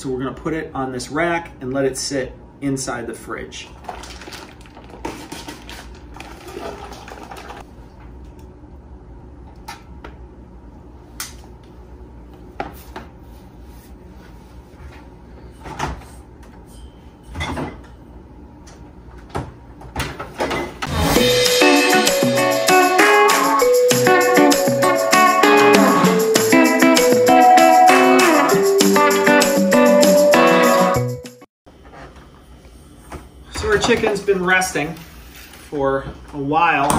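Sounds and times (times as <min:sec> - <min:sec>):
plastic bag rustling: 0:03.8 - 0:07.6.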